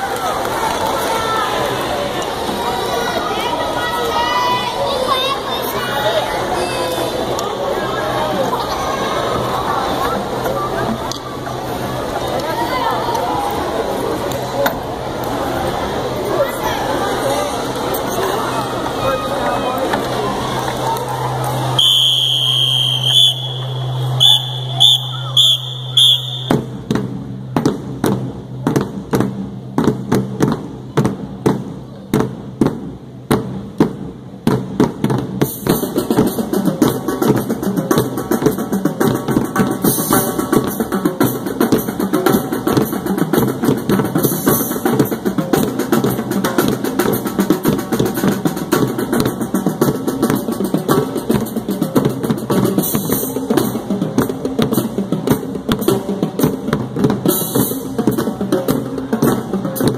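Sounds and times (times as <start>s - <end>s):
marching drumline playing: 21.6s - 59.9s.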